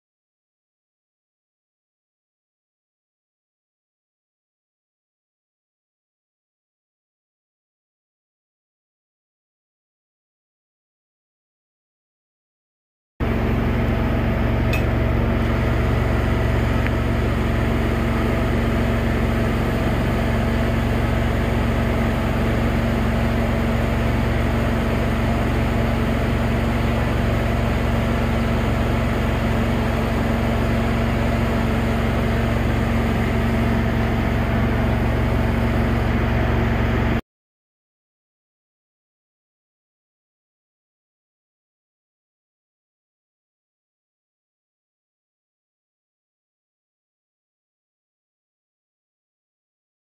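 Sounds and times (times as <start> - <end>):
welder generator engine humming: 13.2 - 37.2.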